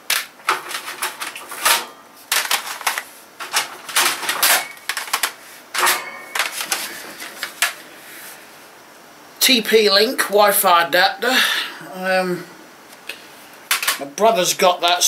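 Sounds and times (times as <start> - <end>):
plastic cd cases clattering: 0.0 - 7.9, 13.7 - 14.1.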